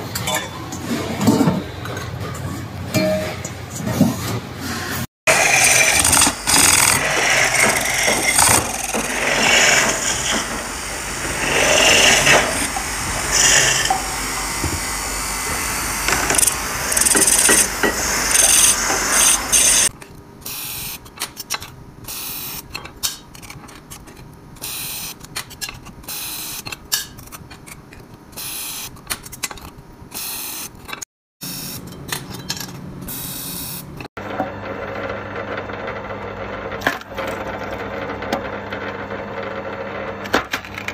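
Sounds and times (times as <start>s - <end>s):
lathe tool scraping wood: 5.3s - 19.9s.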